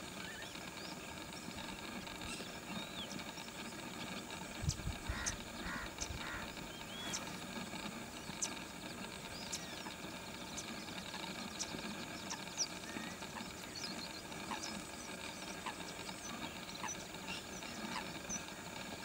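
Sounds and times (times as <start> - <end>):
low outdoor background noise: 0.0 - 19.0
faint high bird chirps: 0.2 - 1.6, 4.6 - 7.3.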